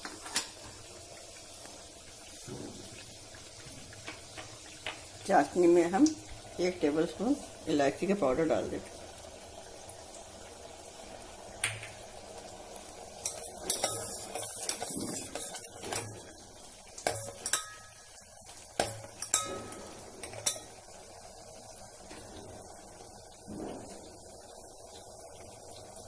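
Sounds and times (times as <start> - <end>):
spoon clinking against metal pot: 13.2 - 15.7, 17.0 - 18.1, 18.8 - 20.8.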